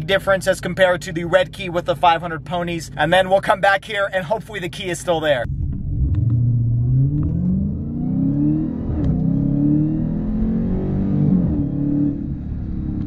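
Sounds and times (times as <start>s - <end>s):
car engine at full throttle: 5.4s - 13.0s.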